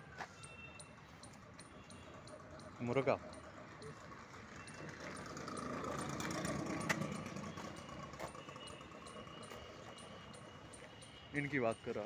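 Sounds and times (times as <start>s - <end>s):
engine running: 2.1s - 10.7s.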